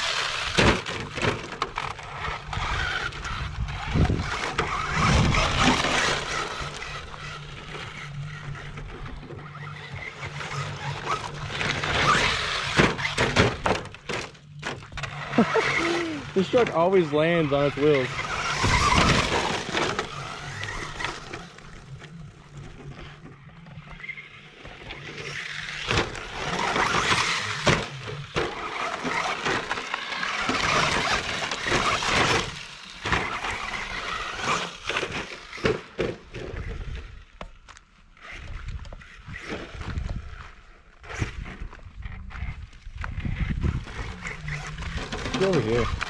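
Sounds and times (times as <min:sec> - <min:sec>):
electric motor whining: 0:00.0 - 0:35.6, 0:38.2 - 0:46.0
tyres churning on gravel: 0:00.0 - 0:37.4, 0:38.2 - 0:46.0.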